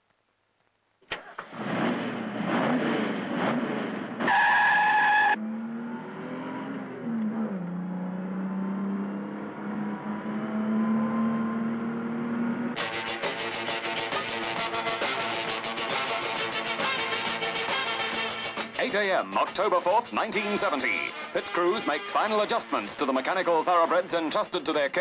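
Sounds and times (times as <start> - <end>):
race car engine revving: 1.1 - 18.1
tyre squeal: 4.3 - 5.4.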